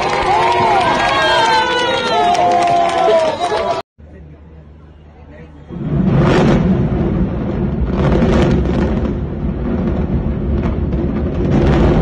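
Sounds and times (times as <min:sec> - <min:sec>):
loud crackling surges: 0:05.6 - 0:12.0
building collapsing low rumble: 0:05.7 - 0:12.0
explosive charges going off: 0:05.7 - 0:12.0.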